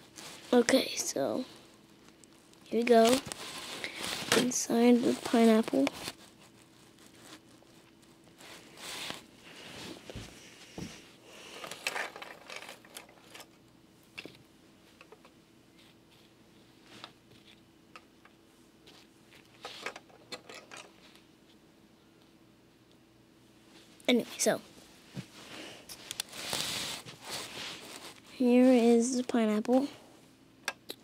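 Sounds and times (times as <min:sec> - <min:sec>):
rustling: 0:01.5 - 0:13.6, 0:24.7 - 0:28.8
plastic pieces clicking and scraping: 0:11.6 - 0:13.6, 0:19.4 - 0:20.9.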